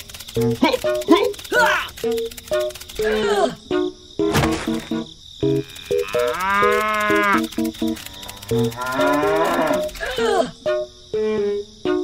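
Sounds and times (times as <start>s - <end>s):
cow mooing: 5.6s - 7.4s, 8.1s - 9.9s.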